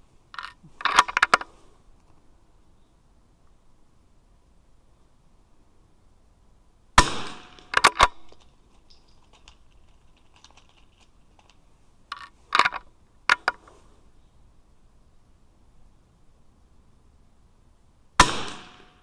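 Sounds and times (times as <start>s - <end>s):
rifle shot: 7.0s - 8.2s, 18.2s - 19.0s.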